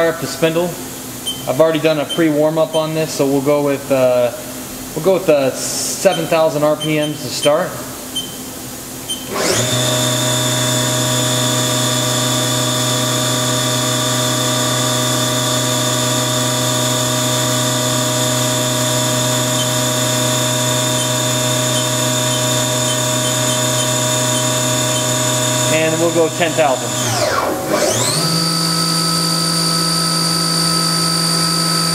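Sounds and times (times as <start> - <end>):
machine spindle whining: 9.1 - 31.9.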